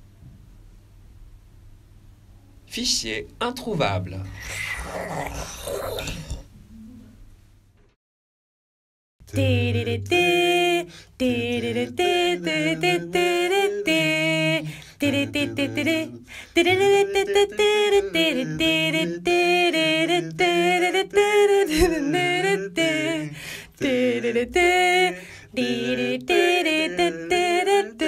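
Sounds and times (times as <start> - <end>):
a cappella voices singing: 9.2 - 28.0.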